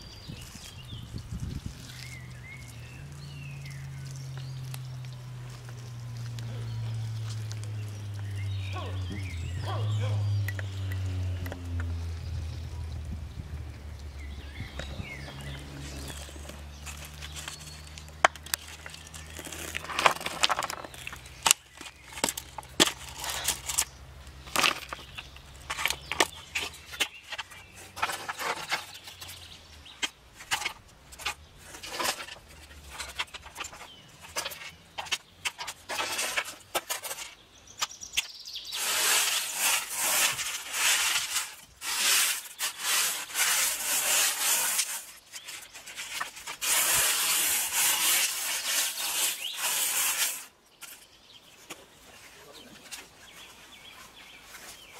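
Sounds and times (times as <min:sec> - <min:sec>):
hands scraping gravel across tray: 0:00.2 - 0:12.9, 0:14.0 - 0:54.9
pebbles clicking on plastic tray: 0:18.2 - 0:23.8.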